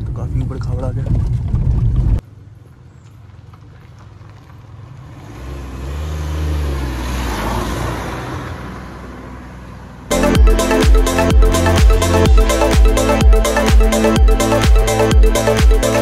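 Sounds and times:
car road noise: 0.0s - 16.0s
motor vehicle passing by: 4.2s - 10.1s.

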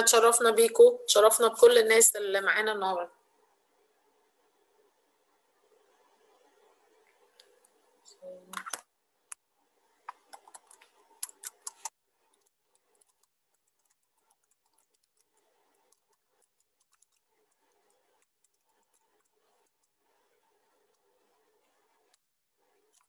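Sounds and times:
typing on computer keyboard: 10.1s - 19.9s.

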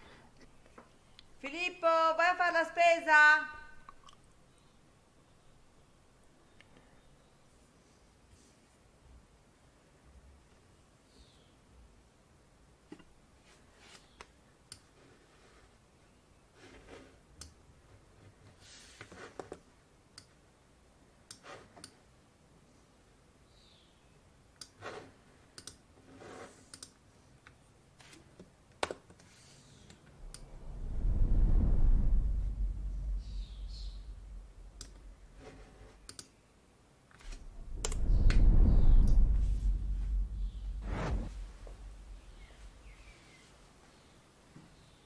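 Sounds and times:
soft brushing sounds: 7.6s - 8.9s, 29.2s - 36.0s, 37.2s - 44.2s
computer mouse clicking: 25.6s - 25.8s, 26.7s - 27.0s
low rumble: 30.1s - 35.4s, 37.2s - 43.1s.

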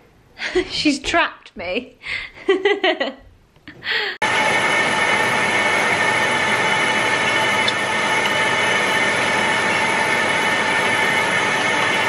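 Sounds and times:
slush machine whirring hum: 4.2s - 12.0s.

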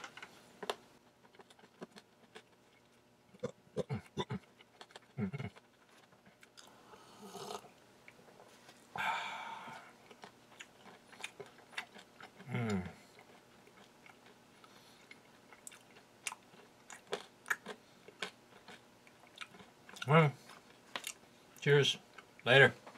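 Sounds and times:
hard candy crunching: 0.1s - 6.7s
breathy exhale: 9.0s - 9.9s
person humming: 12.4s - 13.0s.

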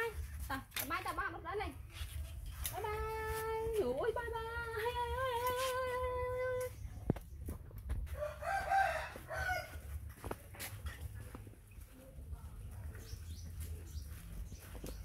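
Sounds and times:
rooster crowing: 8.1s - 9.9s.

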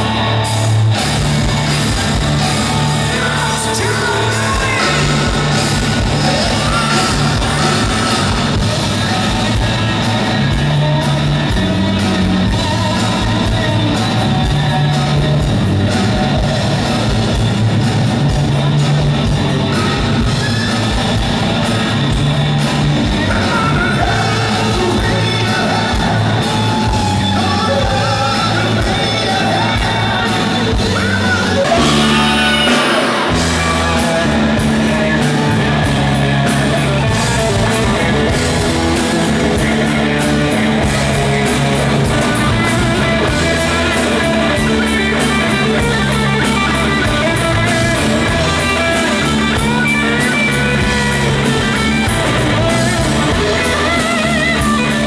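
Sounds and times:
live rock band playing: 0.0s - 55.0s
electric guitar solo: 23.0s - 55.0s.

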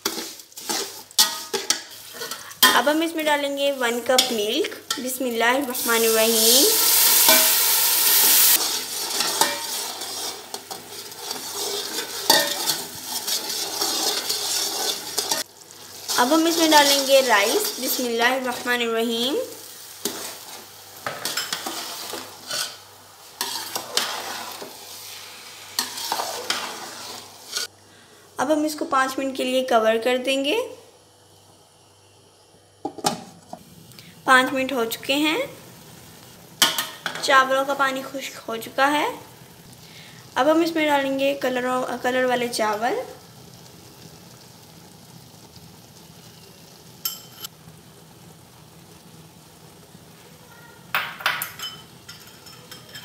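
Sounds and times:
metal spatula scraping pot: 0.0s - 2.9s, 8.5s - 18.0s, 20.0s - 22.8s, 23.4s - 25.0s, 25.8s - 27.7s
sizzle: 0.0s - 53.0s.

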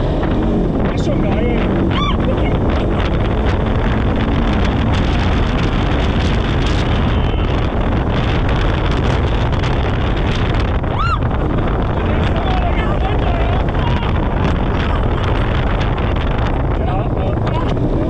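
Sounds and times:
off-road vehicle engine running: 0.0s - 18.0s
wind buffeting microphone: 0.0s - 18.0s
high whoop: 1.9s - 2.3s, 10.9s - 11.3s.

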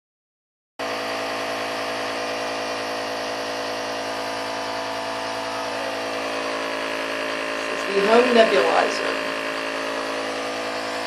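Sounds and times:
air compressor humming: 0.8s - 11.0s.

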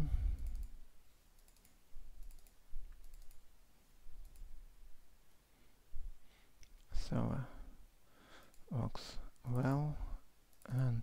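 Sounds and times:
computer mouse clicking: 0.3s - 0.8s, 1.4s - 3.5s, 4.2s - 4.6s.

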